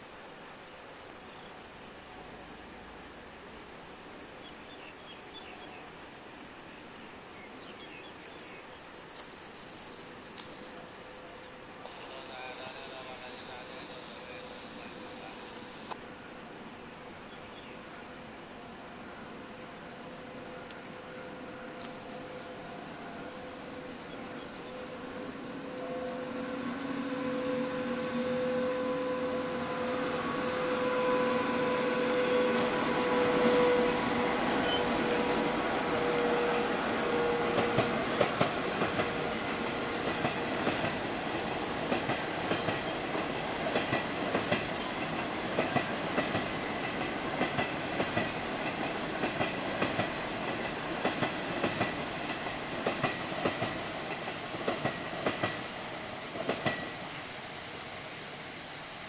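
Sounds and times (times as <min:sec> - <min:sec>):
electric locomotive hum: 0:17.8 - 0:59.0
train coaches rumbling: 0:20.1 - 0:57.3.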